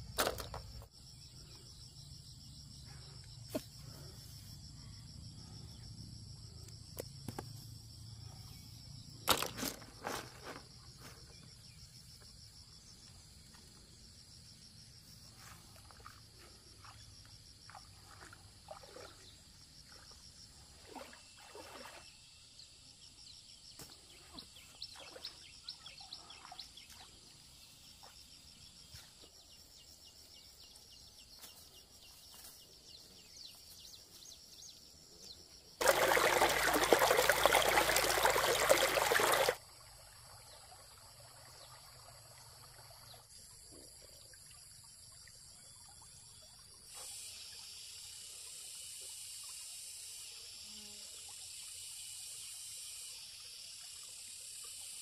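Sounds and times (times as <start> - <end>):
water trickling and splashing: 15.2 - 22.3, 24.3 - 28.4, 35.8 - 47.7
loud rush of water: 35.8 - 39.6.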